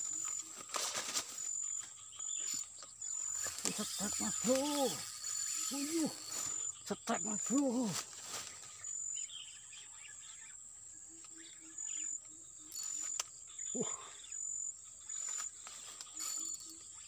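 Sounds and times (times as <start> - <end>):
insects chirping: 0.0 - 17.0
faint low pulsing call: 3.0 - 8.2.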